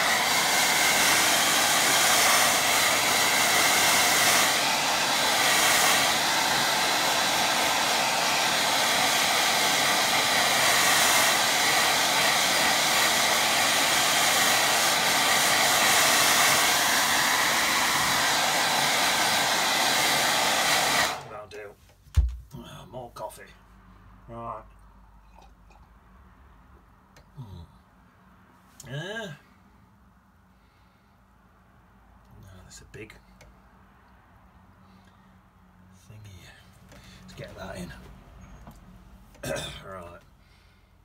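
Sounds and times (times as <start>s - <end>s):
hair dryer blowing air: 0.0s - 21.6s.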